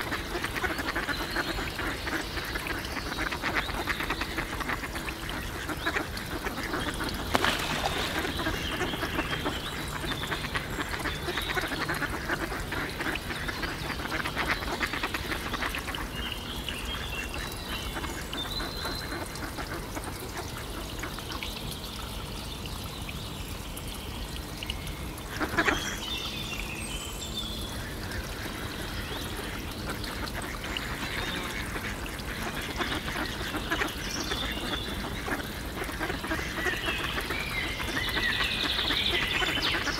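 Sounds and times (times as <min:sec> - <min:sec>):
water splashing: 0:00.0 - 0:16.2.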